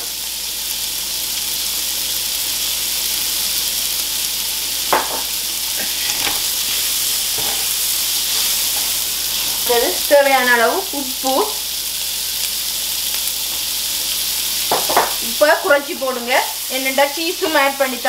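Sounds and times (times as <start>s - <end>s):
chicken sizzling in a skillet: 0.0s - 18.0s
knocks in the pan: 4.9s - 5.3s, 14.7s - 15.2s.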